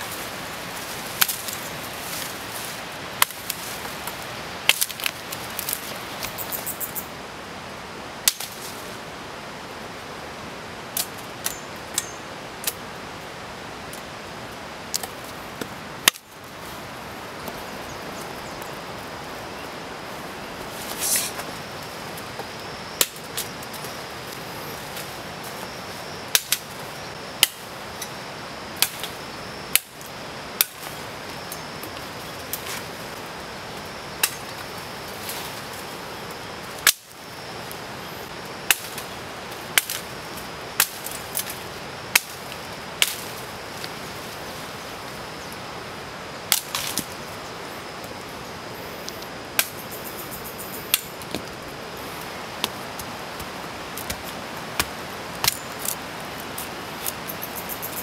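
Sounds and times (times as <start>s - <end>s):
rain hissing: 0.0s - 6.5s, 12.3s - 29.4s
machete chopping tree branch: 27.4s - 27.6s.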